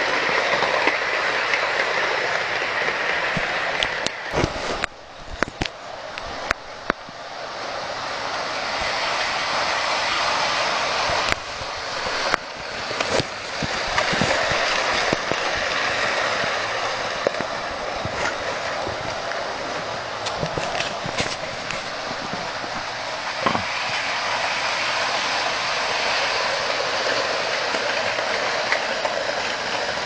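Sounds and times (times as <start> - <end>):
model train rattling whir: 0.0 - 30.0.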